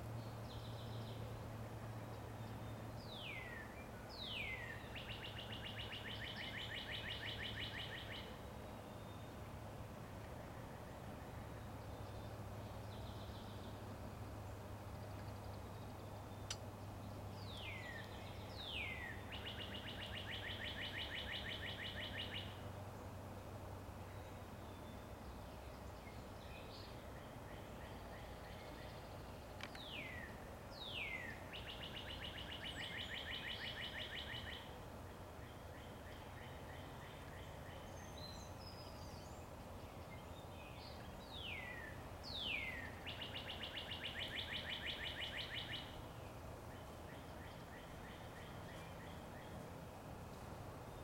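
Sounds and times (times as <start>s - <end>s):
low background noise: 0.0s - 51.0s
songbird whistles and trill: 40.7s - 45.9s.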